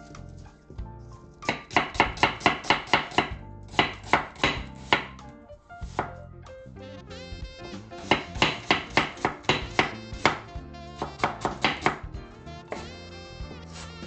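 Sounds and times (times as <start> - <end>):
knife chopping on wooden board: 1.4 - 5.2, 5.8 - 6.2, 7.9 - 12.1, 12.7 - 13.0.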